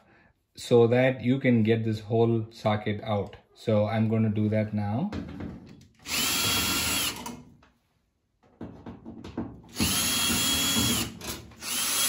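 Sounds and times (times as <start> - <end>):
drill motor whine: 6.1 - 7.2, 9.7 - 12.0.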